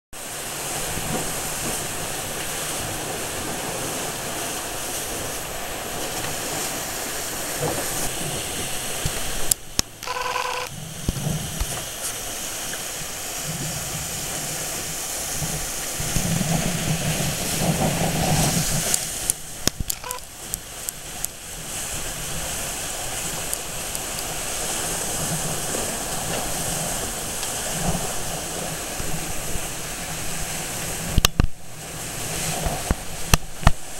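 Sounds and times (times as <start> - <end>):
water rushing past hulls: 0.2 - 33.9
wind on microphone: 10.6 - 33.9.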